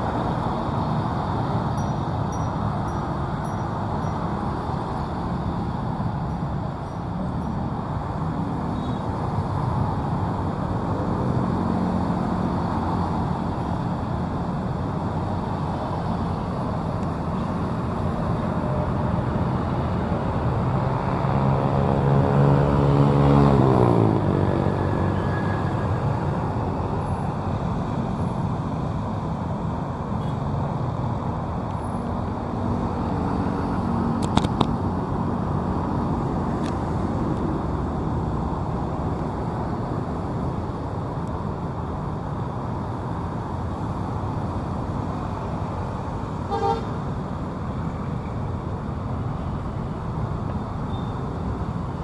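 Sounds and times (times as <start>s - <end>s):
road traffic rumble: 0.0s - 52.0s
vehicle horn toot: 46.5s - 47.0s.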